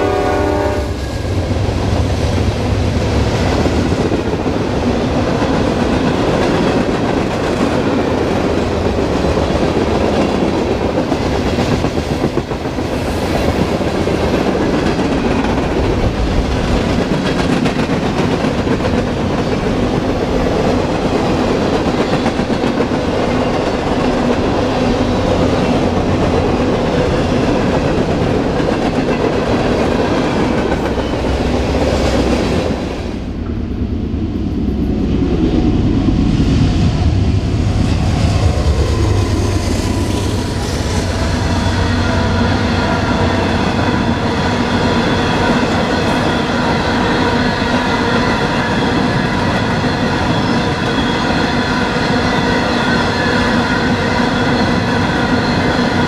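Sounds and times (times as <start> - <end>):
distant diesel locomotive rumble: 0.0 - 56.0
train wheels clattering on rails: 0.9 - 33.6.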